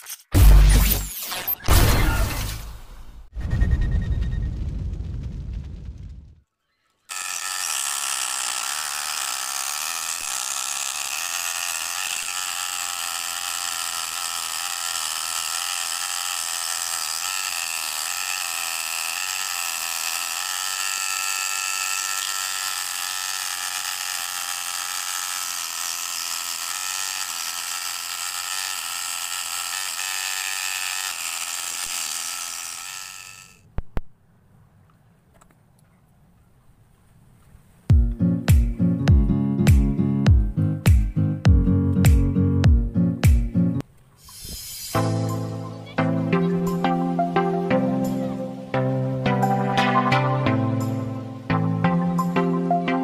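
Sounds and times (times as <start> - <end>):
scroll saw buzzing whine: 6.6 - 33.7, 44.1 - 53.0.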